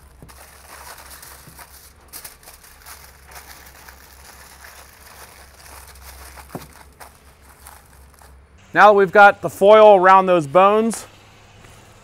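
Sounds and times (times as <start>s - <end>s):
aluminium foil crinkling: 0.0s - 8.4s
low steady hum: 0.0s - 12.0s.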